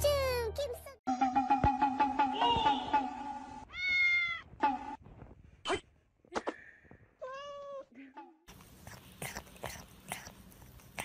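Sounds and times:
background music: 0.0 - 3.6
cat meowing: 3.7 - 4.5.

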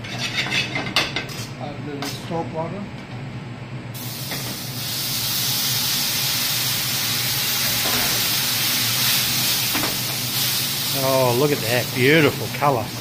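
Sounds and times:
liquid hissing in a hot pan: 4.0 - 13.0.

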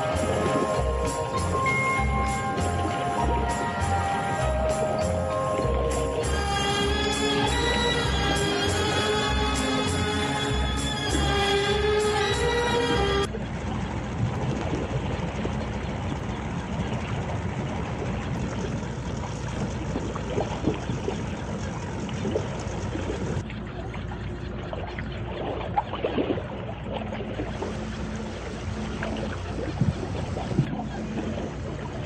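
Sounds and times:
background music: 0.0 - 13.3
motorboat engine humming: 0.0 - 32.0
water splashing: 0.0 - 32.0.

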